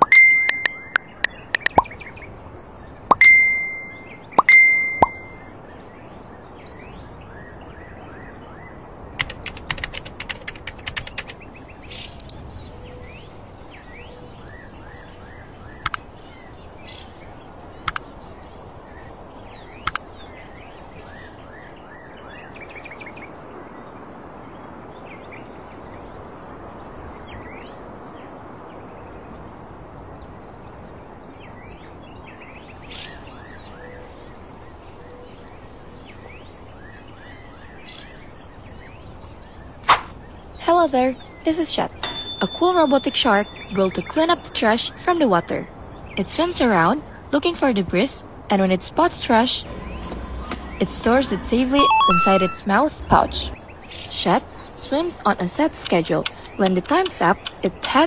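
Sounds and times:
laptop keyboard typing: 0:09.2 - 0:11.4, 0:17.9 - 0:18.1, 0:55.8 - 0:58.0
birds chirping: 0:09.3 - 0:22.8, 0:32.5 - 0:41.9, 0:49.6 - 0:58.0.

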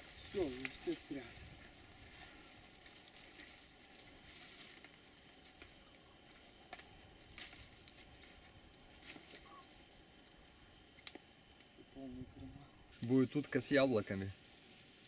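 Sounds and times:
twigs clicking: 0:00.0 - 0:11.8
rustling branches and leaves: 0:00.0 - 0:15.0.

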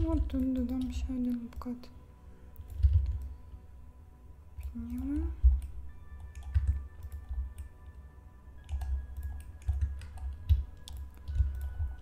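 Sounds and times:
keyboard keystrokes: 0:02.6 - 0:03.3, 0:04.6 - 0:07.7, 0:08.6 - 0:12.0.

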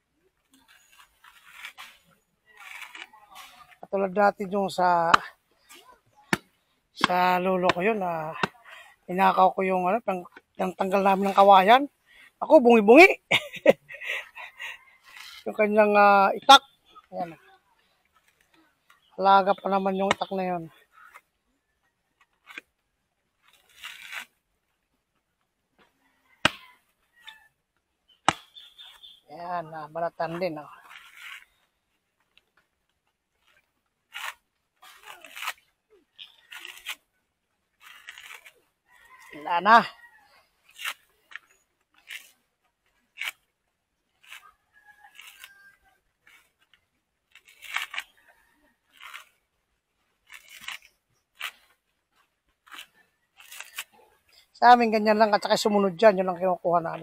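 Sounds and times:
coconut husk tearing: 0:00.5 - 0:04.1, 0:09.9 - 0:11.5, 0:18.2 - 0:21.3, 0:23.4 - 0:24.5, 0:26.3 - 0:37.1, 0:37.7 - 0:55.7.

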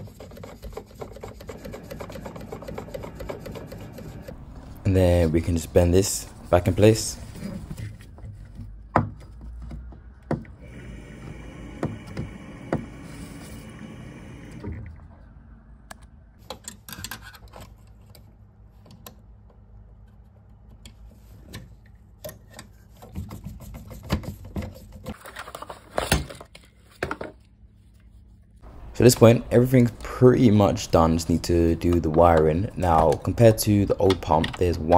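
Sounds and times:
screwdriver tapping on boiler parts: 0:31.8 - 0:34.9.

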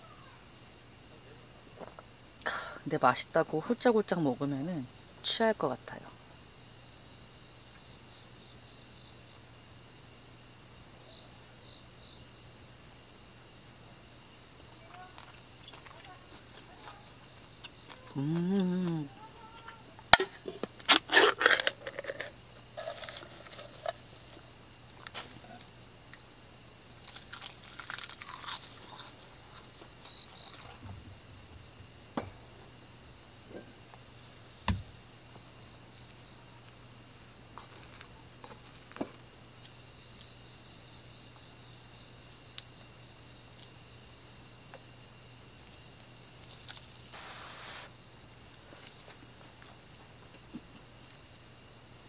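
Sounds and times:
insect chorus chirring: 0:00.0 - 0:52.0.

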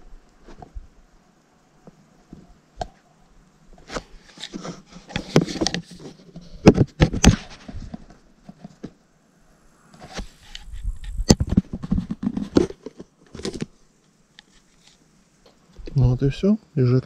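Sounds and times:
plastic pipe knocks and scraping: 0:04.6 - 0:09.0, 0:11.3 - 0:13.6.

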